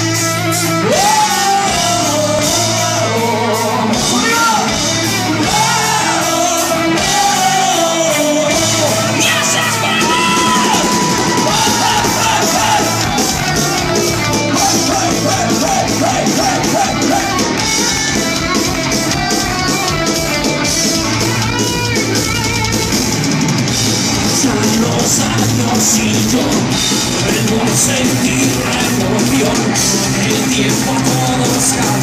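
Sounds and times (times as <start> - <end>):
bass guitar: 0.0 - 32.0
drum kit beat: 0.0 - 32.0
electric guitars: 0.0 - 32.0
gliding lead guitar line: 0.0 - 32.0.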